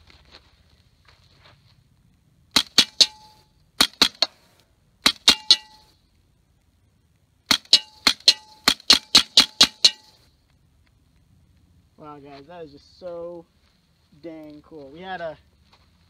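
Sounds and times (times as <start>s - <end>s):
rifle shots: 2.5s - 4.4s, 5.0s - 5.8s, 7.5s - 10.2s
short metallic ring: 2.6s - 4.3s, 5.2s - 6.0s, 7.6s - 10.3s.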